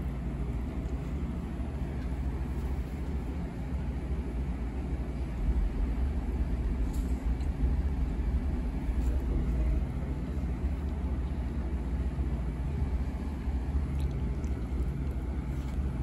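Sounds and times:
low vehicle rumble: 0:00.0 - 0:16.0.

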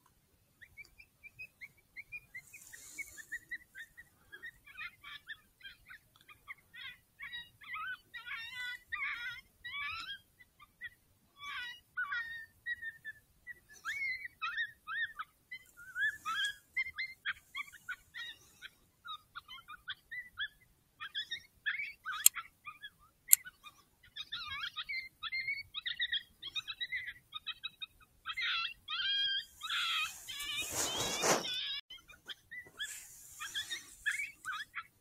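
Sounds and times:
coyotes yipping and howling: 0:00.6 - 0:35.0.

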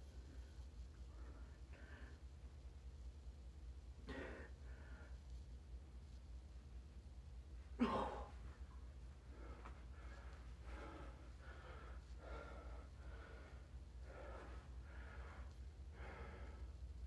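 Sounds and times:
man breathing heavily: 0:00.1 - 0:02.4, 0:04.0 - 0:05.4, 0:08.7 - 0:17.0.

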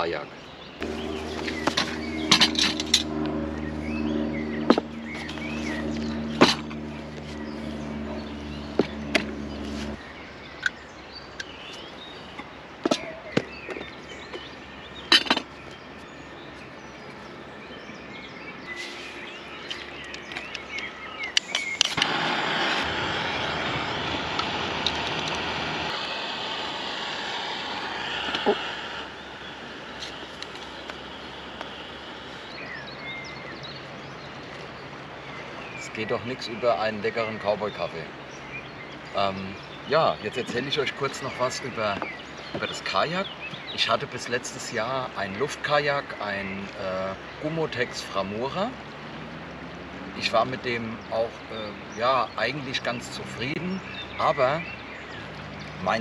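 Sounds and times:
low hum: 0:00.8 - 0:10.7, 0:18.8 - 0:35.9
camping stove hissing: 0:21.4 - 0:32.9.

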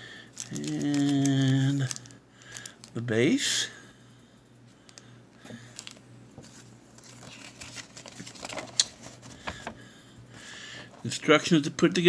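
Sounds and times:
cardboard and plastic packaging rustling: 0:00.3 - 0:03.1, 0:05.5 - 0:09.8.

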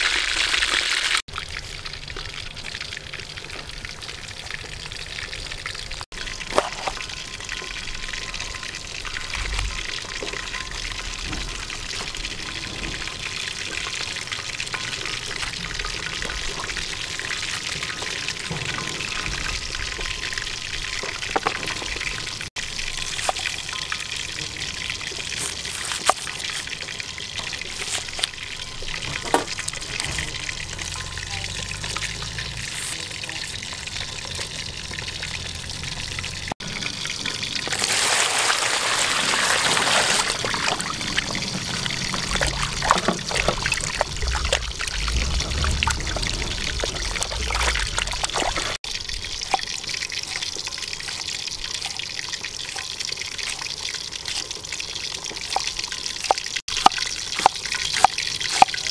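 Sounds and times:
water splashing into basin: 0:37.7 - 0:53.7.

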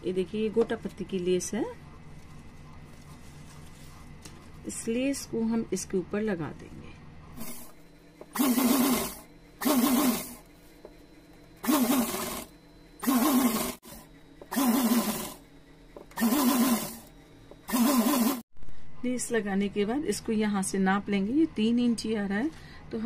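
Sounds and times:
sewing machine stitching: 0:08.4 - 0:10.4, 0:11.6 - 0:15.4, 0:16.2 - 0:17.1, 0:17.7 - 0:18.4.

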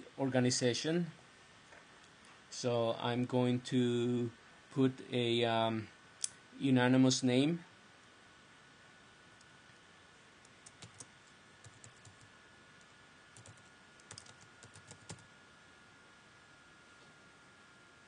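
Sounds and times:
computer keyboard typing: 0:10.5 - 0:12.3, 0:13.4 - 0:15.2.

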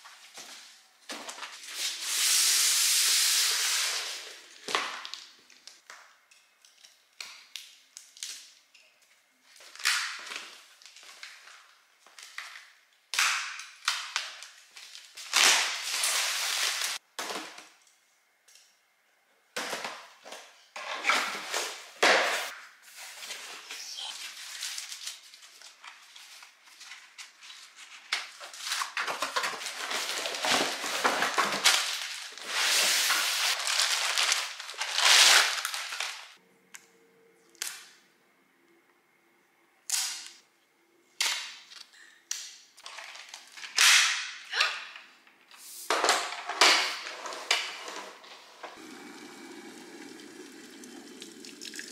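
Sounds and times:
cardboard packaging handled: 0:24.3 - 0:36.3
plastic bags crinkling: 0:26.5 - 0:32.6, 0:33.2 - 0:36.4.

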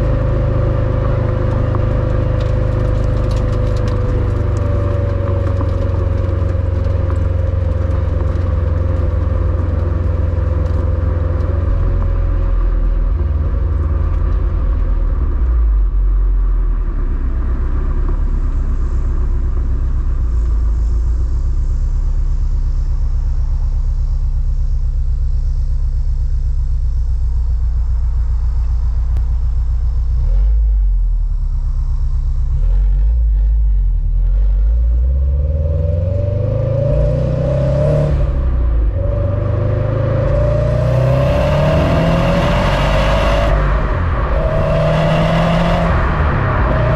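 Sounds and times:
car engine idling: 0:00.0 - 0:35.3.

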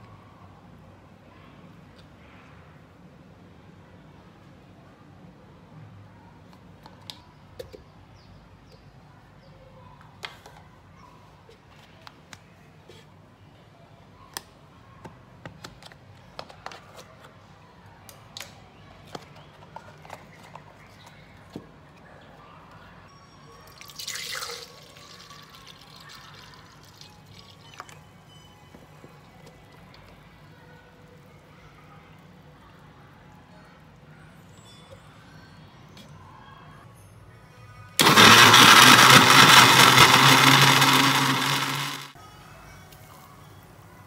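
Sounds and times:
milk splashing into a jug: 0:23.7 - 0:27.6.

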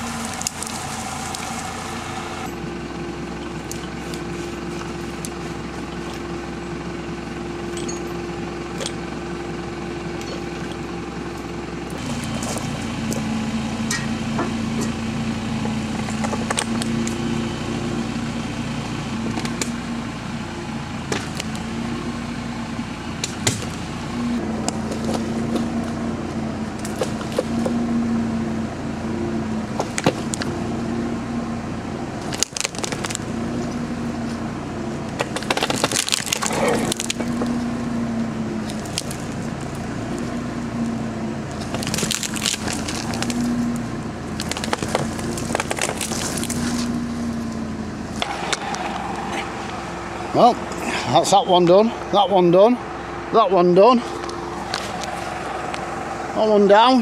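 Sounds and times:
wood cracking and splitting: 0:00.0 - 0:01.9, 0:11.9 - 0:13.3, 0:15.6 - 0:17.2, 0:21.0 - 0:21.9, 0:23.2 - 0:27.9, 0:29.7 - 0:30.6, 0:32.1 - 0:51.0, 0:54.0 - 0:55.9
tractor engine running: 0:00.0 - 0:57.0.

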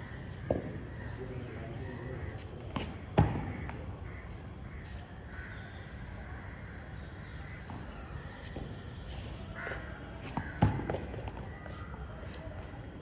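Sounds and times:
birds cawing: 0:00.0 - 0:08.4, 0:09.6 - 0:10.9
cricket bat striking ball: 0:00.5 - 0:01.0, 0:02.7 - 0:03.8, 0:09.7 - 0:11.6.

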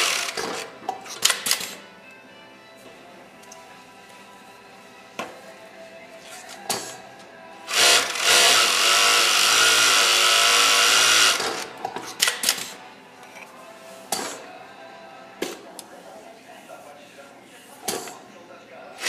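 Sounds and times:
sewing machine running: 0:00.0 - 0:00.6, 0:07.7 - 0:11.6.

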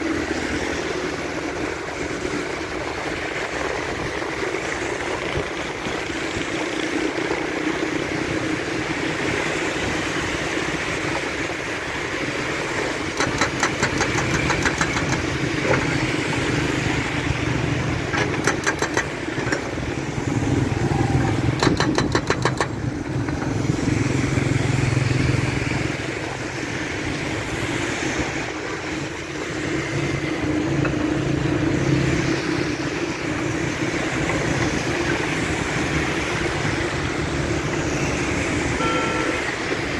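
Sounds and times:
engine drone: 0:00.0 - 0:39.9
hydraulic breaker hammer pounding: 0:13.1 - 0:15.3, 0:18.2 - 0:19.2, 0:21.6 - 0:23.4.

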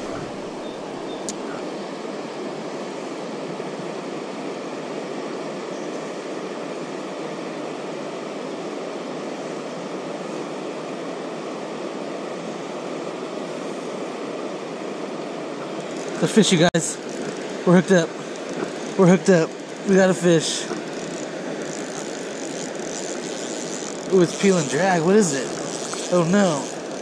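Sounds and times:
river water rushing over rocks: 0:09.9 - 0:27.0.

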